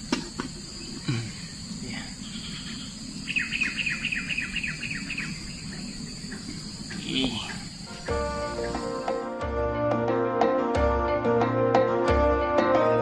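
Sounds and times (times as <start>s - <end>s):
high insect drone: 0.0s - 9.6s
bird calling falling notes: 2.2s - 9.3s.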